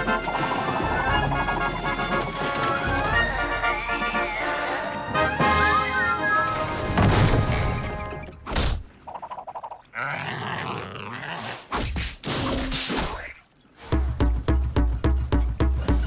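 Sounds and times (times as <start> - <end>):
cartoon music: 0.0 - 7.0.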